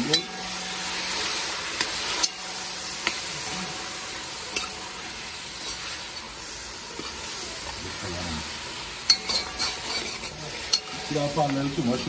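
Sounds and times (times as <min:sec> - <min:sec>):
metal spoon stirring: 0:00.0 - 0:03.9, 0:04.5 - 0:06.3, 0:09.0 - 0:12.0
chicken sizzling in a pot: 0:00.0 - 0:12.0.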